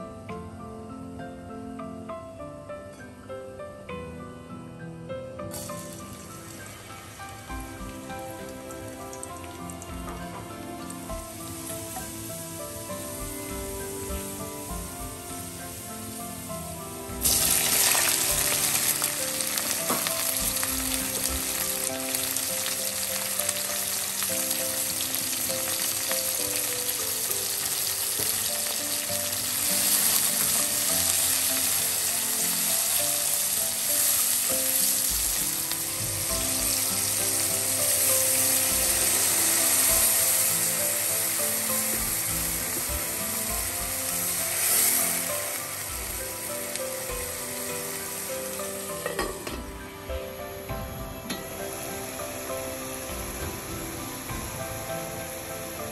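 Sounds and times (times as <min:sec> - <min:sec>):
background music: 0:00.0 - 0:55.9
water poured into hot pan: 0:05.5 - 0:49.8
onions sizzling in oil: 0:05.5 - 0:55.9.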